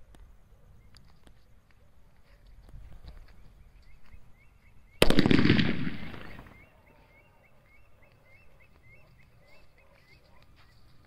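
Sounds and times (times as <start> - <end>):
firecracker bang with echo: 5.0 - 6.6.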